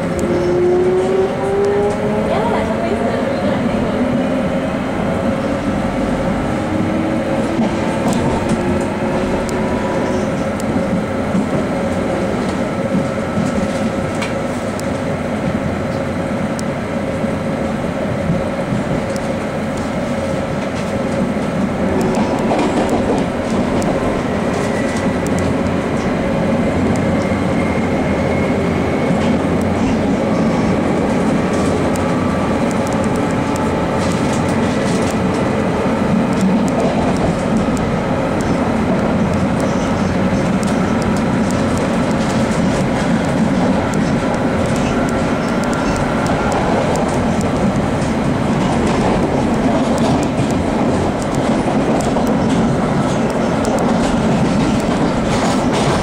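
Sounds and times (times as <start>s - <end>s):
train rumble and hum: 0.0s - 56.0s
wheels clicking over rail joints: 29.1s - 56.0s.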